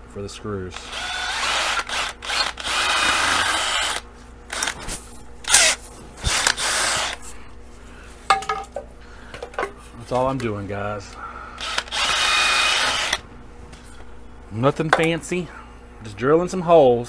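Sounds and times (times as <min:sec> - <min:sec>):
cordless drill boring: 0:00.8 - 0:04.8, 0:05.5 - 0:07.2, 0:11.6 - 0:13.2.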